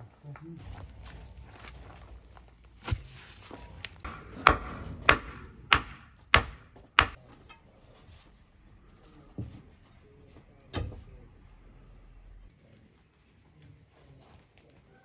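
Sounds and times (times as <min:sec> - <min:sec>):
sharp blows on wooden post: 0:04.0 - 0:07.2.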